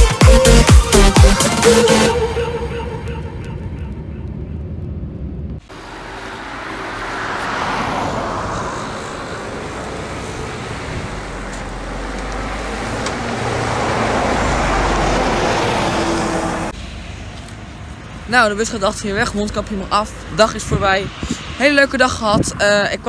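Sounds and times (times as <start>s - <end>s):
traffic noise: 1.5s - 23.0s.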